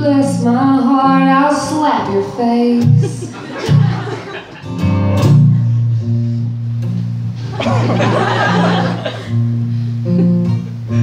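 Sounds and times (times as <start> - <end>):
acoustic guitar strumming: 0.2 - 11.0
audience laughter: 2.8 - 4.9, 7.4 - 9.4.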